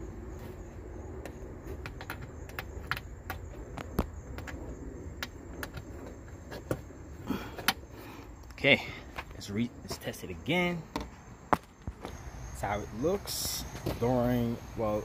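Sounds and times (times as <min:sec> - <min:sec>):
low steady rumble: 0:00.0 - 0:11.5.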